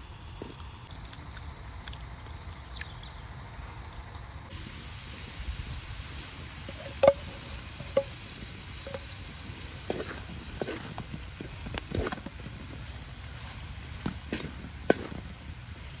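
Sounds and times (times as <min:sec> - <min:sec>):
vegetables sizzling in a pan: 0:00.0 - 0:16.0
wooden spatula scraping a pan: 0:06.7 - 0:08.2, 0:08.8 - 0:09.2, 0:09.9 - 0:12.4.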